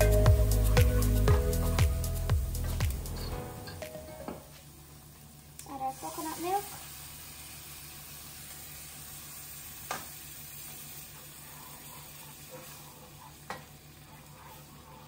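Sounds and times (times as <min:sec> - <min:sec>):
curry sizzling in a frying pan: 0:04.6 - 0:15.0.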